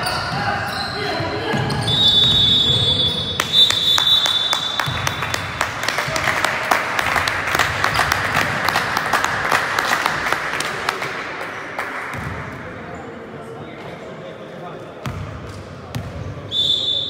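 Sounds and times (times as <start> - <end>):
referee's whistle blasts: 0.1 - 5.1, 16.5 - 17.0
crowd applauding: 3.4 - 12.1.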